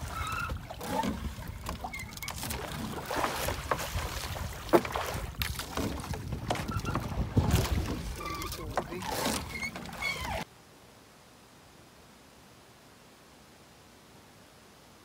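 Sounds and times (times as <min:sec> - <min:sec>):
water sloshing against boat: 0:00.0 - 0:10.5
knocks on boat: 0:04.6 - 0:08.1.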